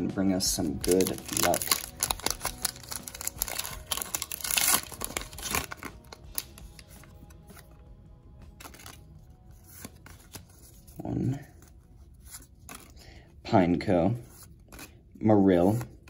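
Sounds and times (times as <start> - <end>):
foil wrapper tearing and crinkling: 0.8 - 6.9, 8.5 - 9.1.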